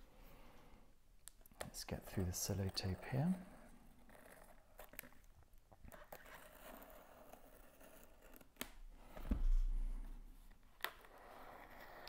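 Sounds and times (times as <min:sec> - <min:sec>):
low thump: 0:09.2 - 0:10.0.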